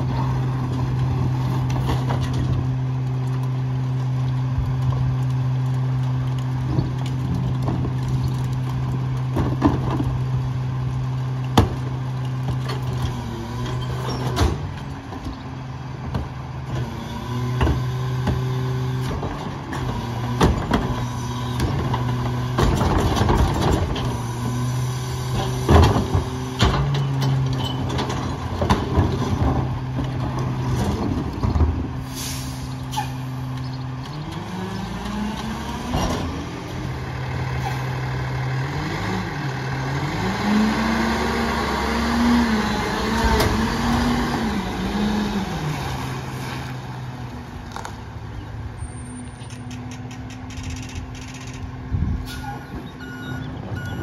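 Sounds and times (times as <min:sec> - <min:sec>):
garbage truck diesel engine: 0:00.0 - 0:54.0
carts banging and thumping: 0:06.6 - 0:10.3, 0:25.3 - 0:32.0.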